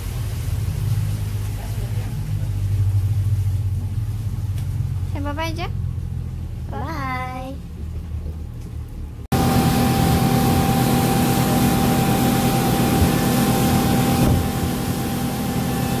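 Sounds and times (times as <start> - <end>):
rush of wind and water: 0.0 - 5.2, 9.3 - 16.0
outboard motor drone: 0.0 - 16.0.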